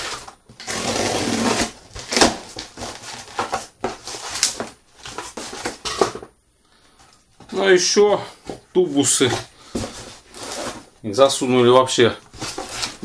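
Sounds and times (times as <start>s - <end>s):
packaging rustling: 0.0s - 6.2s, 8.4s - 10.9s, 12.2s - 13.0s.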